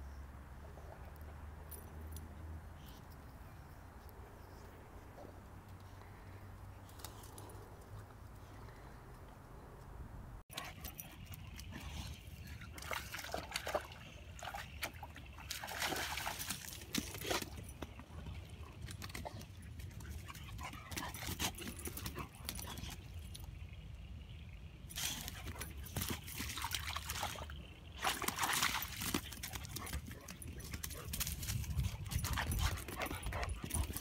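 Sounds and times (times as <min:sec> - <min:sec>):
dog splashing in shallow water: 0:11.6 - 0:18.1, 0:25.0 - 0:30.9.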